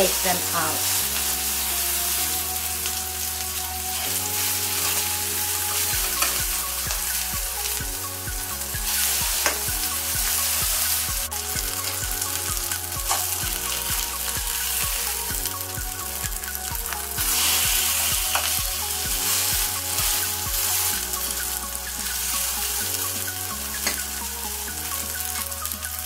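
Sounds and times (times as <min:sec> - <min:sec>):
patties sizzling in oil: 0:00.0 - 0:26.0.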